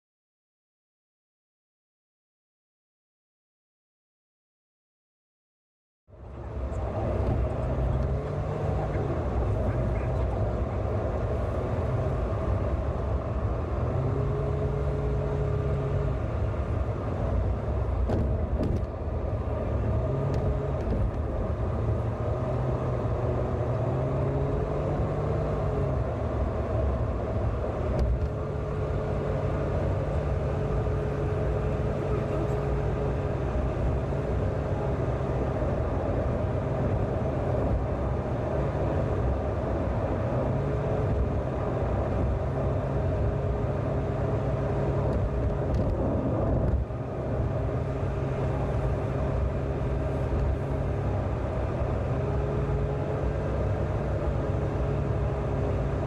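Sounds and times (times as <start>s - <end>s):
car engine and tyre rumble: 6.1s - 56.0s.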